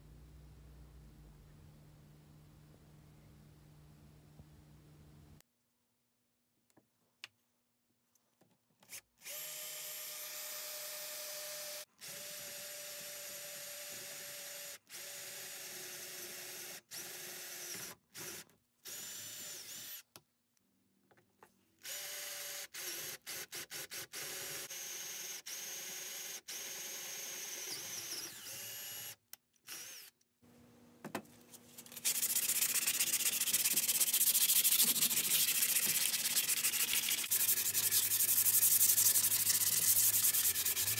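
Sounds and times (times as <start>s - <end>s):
power drill drilling wood: 21.9s - 30.1s
hand sanding wooden board: 31.9s - 40.9s.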